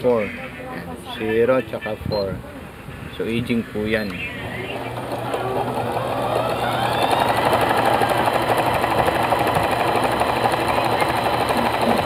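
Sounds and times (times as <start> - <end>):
sewing machine motor whine: 3.9 - 12.0.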